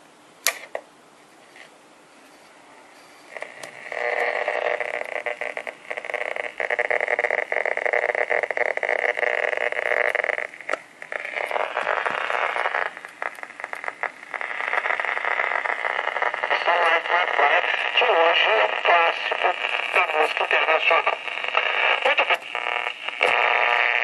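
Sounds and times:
radio static hiss and crackle: 0.0s - 24.0s.

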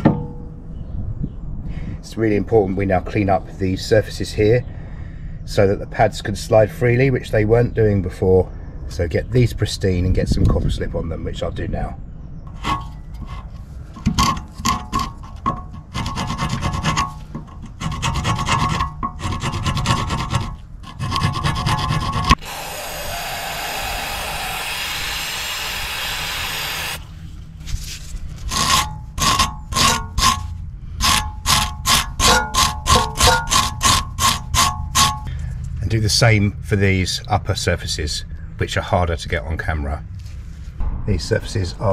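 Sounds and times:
wire brush scrubbing metal: 12.5s - 27.0s, 28.4s - 35.3s
aerosol spray hissing: 22.4s - 27.0s.

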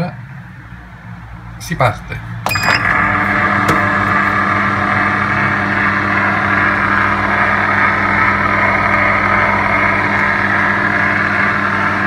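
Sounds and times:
ice cream maker humming: 2.5s - 12.0s.

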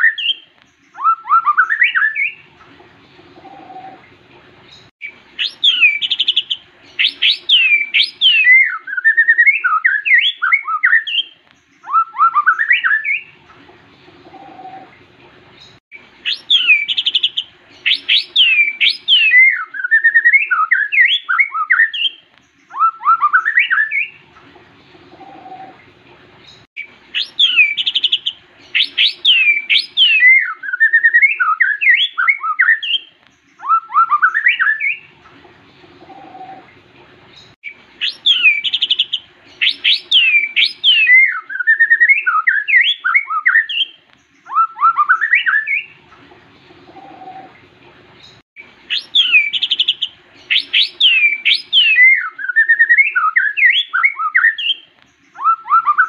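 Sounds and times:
bird singing whistled phrases: 0.0s - 2.5s, 5.0s - 13.4s, 16.2s - 24.2s, 27.1s - 35.1s, 37.6s - 46.0s, 48.9s - 56.0s.

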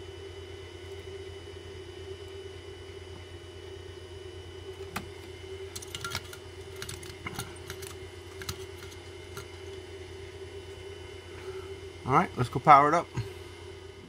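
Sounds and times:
steady low hum: 0.0s - 14.0s.

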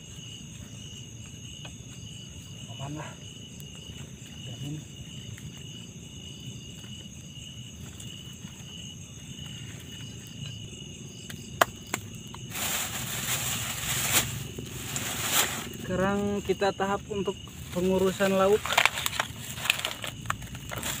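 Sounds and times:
crickets chirring: 0.0s - 21.0s
loud rustling hiss: 12.5s - 15.9s.

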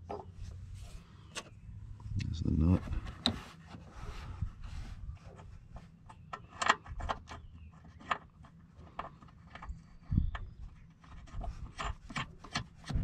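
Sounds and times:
low steady rumble: 0.0s - 13.0s
small metal clicks and scrapes: 5.3s - 13.0s.

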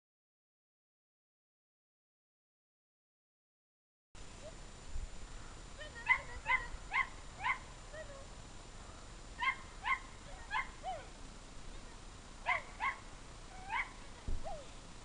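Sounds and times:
young dog yipping: 6.0s - 8.2s, 9.4s - 11.2s, 12.5s - 14.8s.

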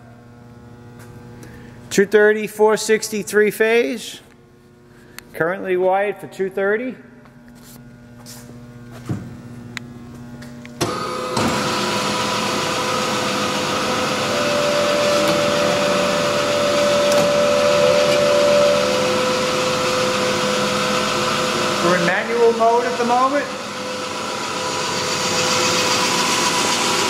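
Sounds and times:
bandsaw running with whine: 9.4s - 27.0s.

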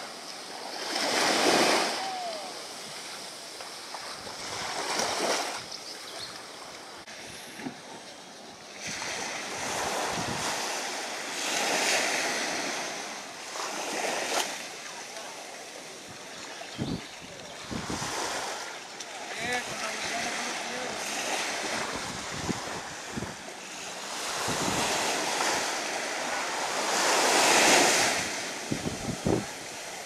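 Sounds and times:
small waves breaking on sand: 0.0s - 30.0s.

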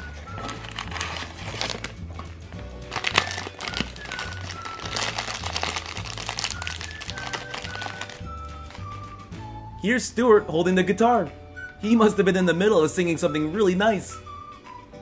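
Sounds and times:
background music with bass line: 0.0s - 12.2s
foil bag crinkling: 0.1s - 2.0s, 2.9s - 8.8s.

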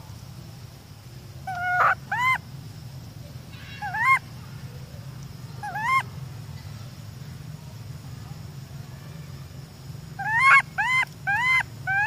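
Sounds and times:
infant monkey crying: 1.5s - 2.4s, 3.7s - 4.2s, 5.6s - 6.0s, 10.2s - 12.0s.

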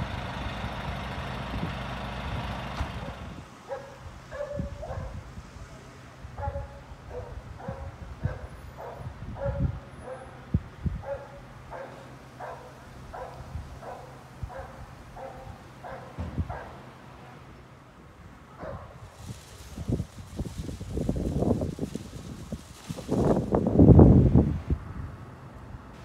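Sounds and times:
dog barking: 3.7s - 5.2s, 6.4s - 16.8s, 18.6s - 19.0s
wind thumps on microphone: 16.2s - 16.7s, 18.7s - 25.0s.

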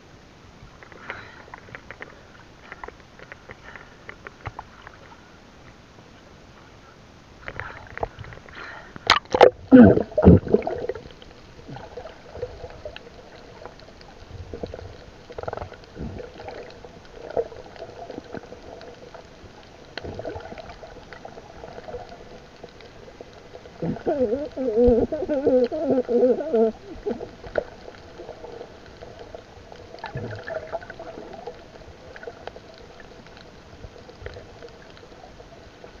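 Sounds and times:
water splashing: 7.4s - 36.0s
rush of bubbles: 7.6s - 36.0s
small bubble sounds: 9.0s - 36.0s
muffled underwater gurgling: 9.1s - 36.0s.

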